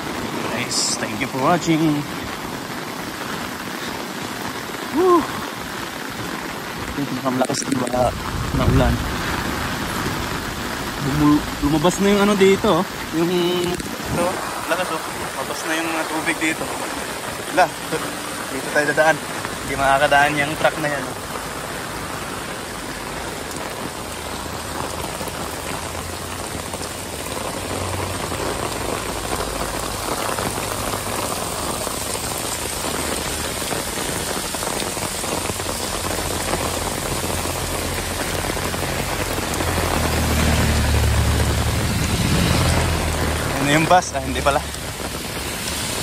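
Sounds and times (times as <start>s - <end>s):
heavy rain pouring: 0.0s - 46.0s.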